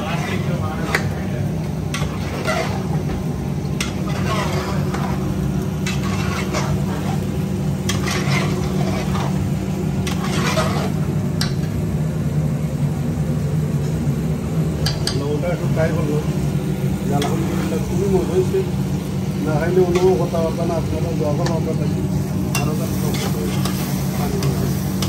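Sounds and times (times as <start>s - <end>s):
light sizzling: 0.0s - 11.8s, 14.8s - 25.0s
steady low hum: 0.0s - 25.0s
metal spoon scraping a pot: 1.9s - 3.0s, 3.8s - 11.0s.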